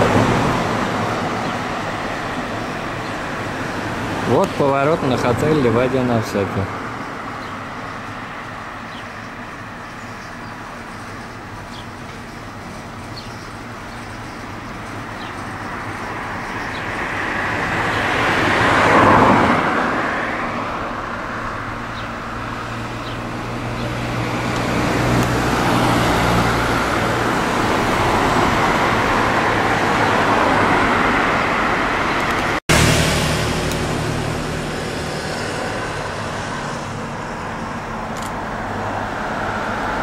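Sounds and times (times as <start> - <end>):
car passing: 0.0 - 10.0, 15.2 - 40.0
traffic noise with engine hum: 0.0 - 40.0.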